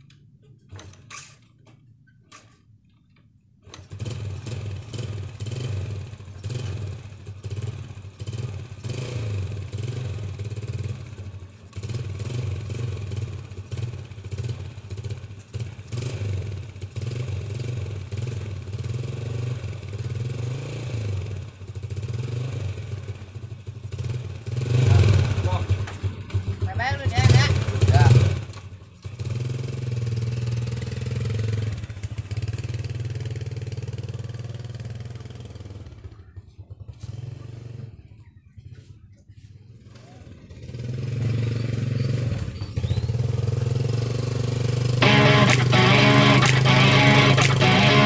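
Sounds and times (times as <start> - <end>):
motorcycle engine idling: 3.8 - 18.9, 25.3 - 28.0, 30.0 - 38.6.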